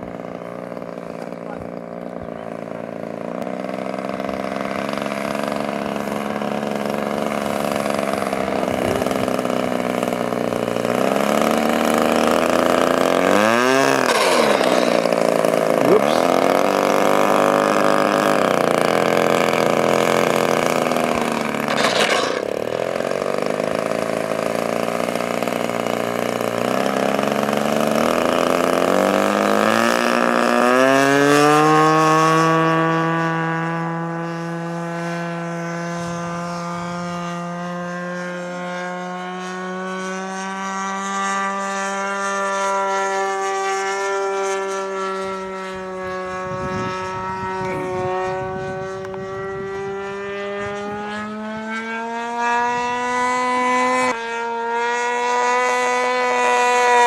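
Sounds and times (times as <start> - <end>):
model airplane engine: 0.0 - 57.0.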